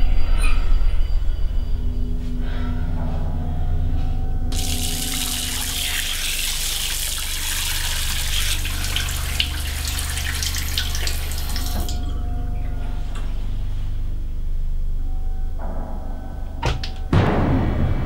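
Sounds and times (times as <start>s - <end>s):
splashing while washing face: 4.6s - 12.0s
tap water running into basin: 4.6s - 12.0s.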